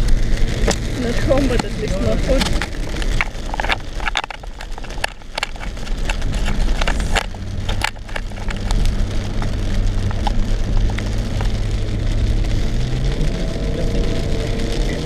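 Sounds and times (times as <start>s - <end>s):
car engine humming: 0.0s - 15.0s
windscreen wipers clicking: 0.1s - 15.0s.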